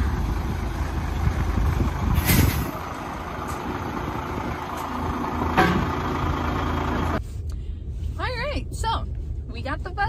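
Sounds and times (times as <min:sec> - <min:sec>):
diesel bus engine idling: 0:00.0 - 0:07.2
air hissing: 0:02.2 - 0:02.8.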